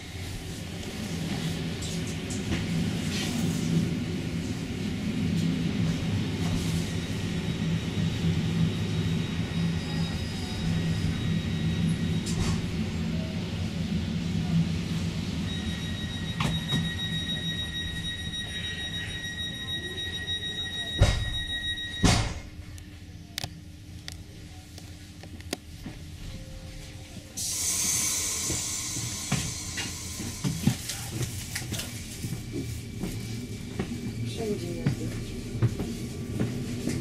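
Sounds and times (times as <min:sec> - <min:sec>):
high electronic warning tone: 0:15.5 - 0:22.3, 0:27.4 - 0:30.8
train doors shutting thumps: 0:20.9 - 0:22.5.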